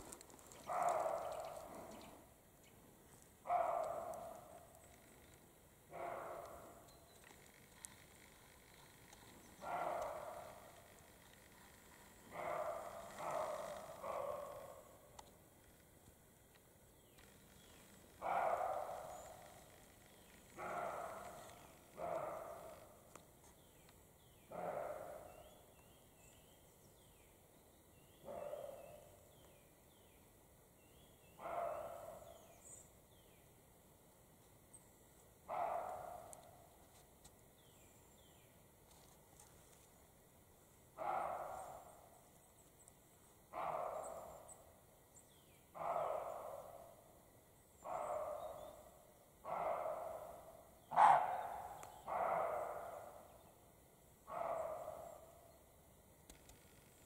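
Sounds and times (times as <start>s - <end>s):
deer barking: 0.6s - 1.9s, 5.9s - 15.1s, 18.2s - 22.9s, 43.5s - 44.6s, 45.8s - 47.0s, 49.5s - 53.4s.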